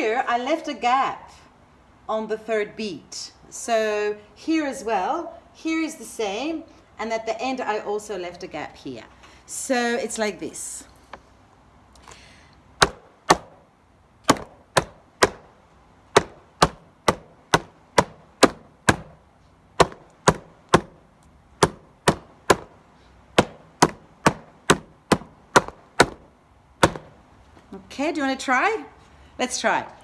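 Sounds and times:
hands drumming on wooden table: 19.8s - 21.0s, 21.6s - 22.7s, 23.4s - 26.2s.

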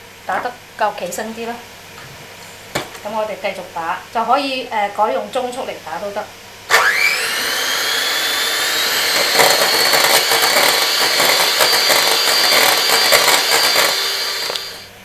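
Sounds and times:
hand mixer motor whine: 6.7s - 14.9s.

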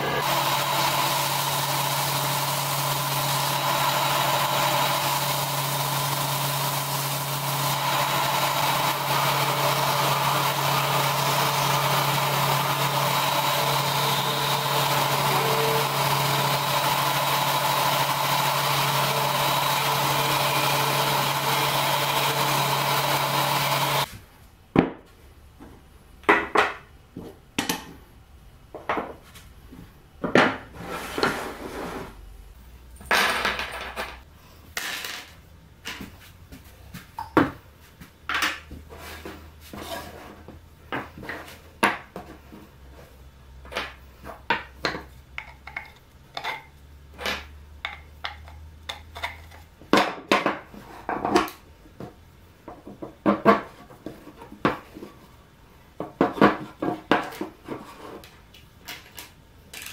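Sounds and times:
sander running: 0.0s - 24.1s.

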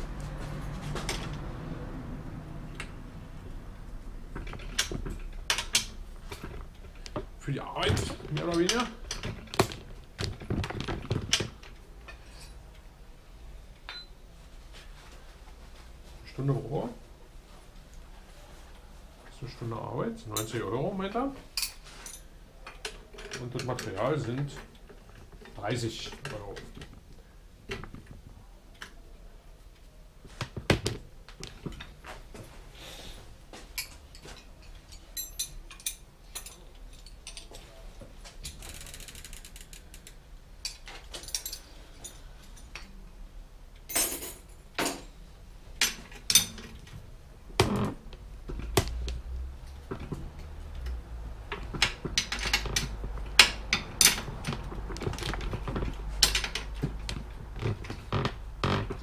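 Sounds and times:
bicycle hub ticking: 38.6s - 40.2s
knocks and clicks of tools: 47.6s - 59.0s.

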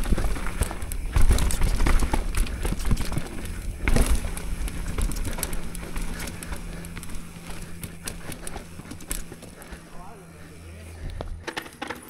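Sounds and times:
bike clacking and rattling: 0.0s - 12.0s
bike tyres rolling over dirt and rock: 0.0s - 12.0s.

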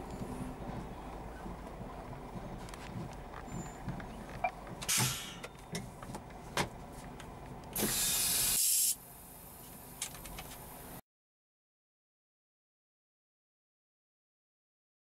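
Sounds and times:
diesel engine idling: 0.0s - 10.0s
air brakes hissing: 4.9s - 5.6s, 7.8s - 9.6s.

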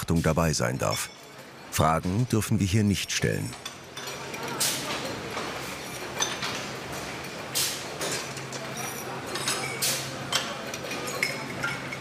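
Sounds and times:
metal shackles and chains clanking: 8.0s - 12.0s.

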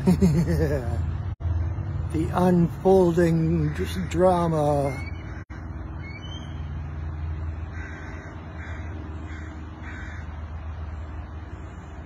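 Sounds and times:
crow cawing: 5.0s - 5.6s, 7.7s - 10.4s.

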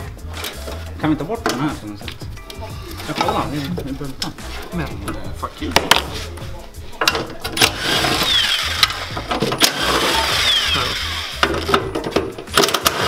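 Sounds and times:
cordless power tool running: 7.6s - 11.6s, 12.6s - 13.0s.

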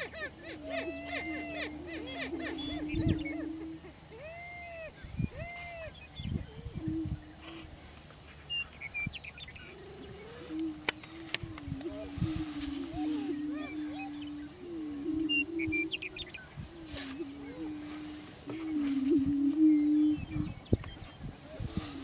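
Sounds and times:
prairie chickens booming: 0.0s - 22.0s
whoop-like bird calls: 0.5s - 5.9s, 12.9s - 16.2s.

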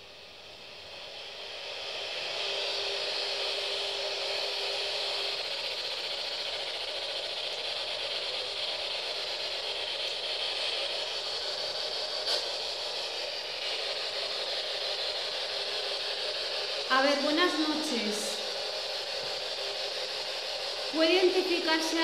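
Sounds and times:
faint steady hum: 16.8s - 18.8s.

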